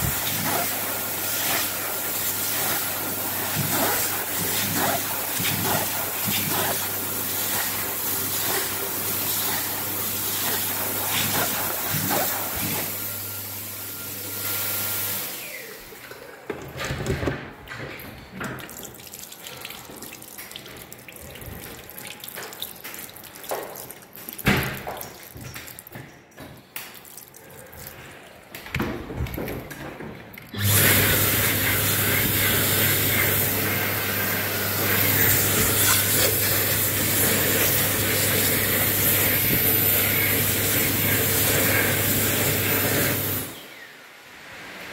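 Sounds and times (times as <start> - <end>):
tap running with splashing: 0.0 - 12.9, 18.4 - 27.3
hand dryer blowing: 0.0 - 16.4, 30.6 - 43.8.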